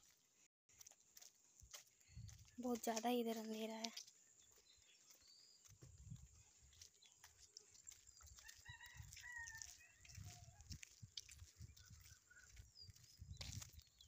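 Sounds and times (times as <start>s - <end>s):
soft thumps of walking: 0.0s - 14.0s
rooster crowing faintly: 8.4s - 11.0s.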